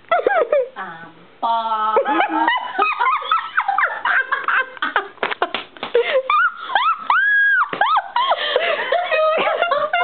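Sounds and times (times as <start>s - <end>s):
woman laughing: 0.1s - 0.8s, 2.0s - 10.0s.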